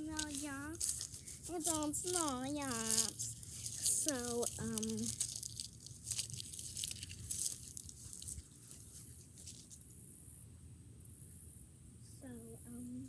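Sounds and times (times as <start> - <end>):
dry leaves crunching and rustling: 0.0 - 9.9.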